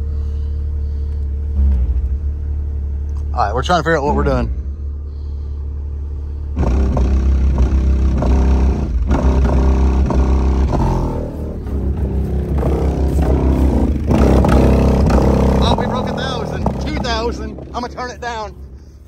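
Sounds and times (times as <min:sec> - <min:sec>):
deep steady bass: 0:00.0 - 0:19.0
subwoofer playing bass-heavy music: 0:06.4 - 0:19.0.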